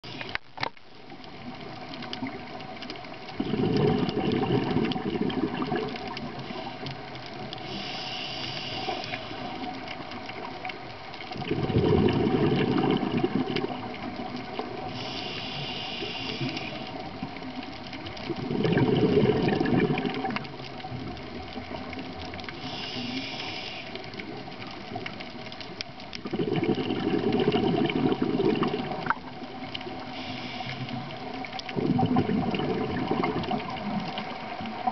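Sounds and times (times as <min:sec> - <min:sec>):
exhaled bubbles rushing: 0:03.2 - 0:06.5, 0:11.3 - 0:14.9, 0:18.2 - 0:21.9, 0:26.1 - 0:30.1, 0:31.1 - 0:34.9
regulator inhalation hiss: 0:06.4 - 0:09.8, 0:14.8 - 0:17.0, 0:22.5 - 0:24.1, 0:29.9 - 0:31.5.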